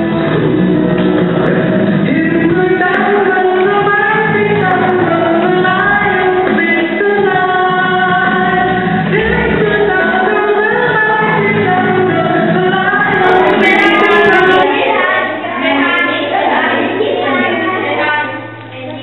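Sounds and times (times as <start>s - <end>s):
group singing: 0.0s - 18.0s
woman singing: 2.0s - 16.5s.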